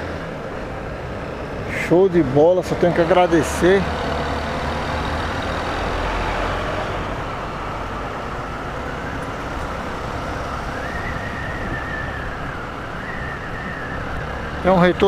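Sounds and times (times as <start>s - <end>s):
motorcycle engine: 0.0s - 14.7s
wind on microphone: 9.4s - 14.6s.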